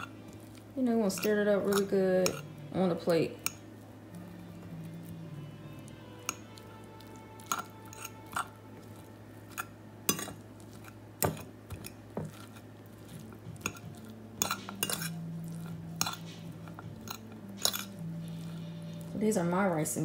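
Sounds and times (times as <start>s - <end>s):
fork scraping a plate: 6.2s - 11.0s, 11.8s - 19.2s.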